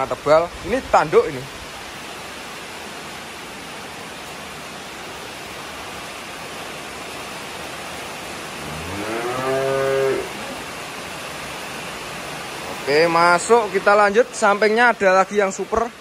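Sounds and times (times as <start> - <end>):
rain hissing: 0.0 - 16.0
calf mooing: 8.6 - 10.6.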